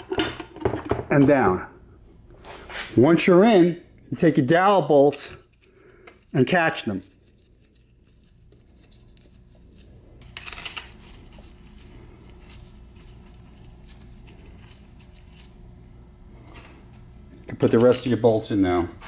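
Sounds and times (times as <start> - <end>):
low room hum: 0.0 - 19.0
metal parts scraping and clicking: 10.2 - 11.8.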